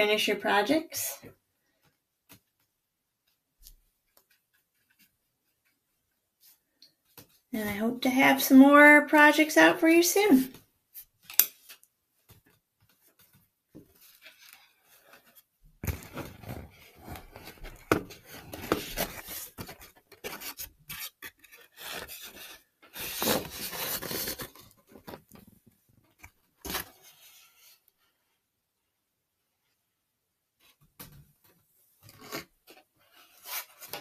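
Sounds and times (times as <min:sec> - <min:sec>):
rubbing and scraping: 0:13.9 - 0:25.4.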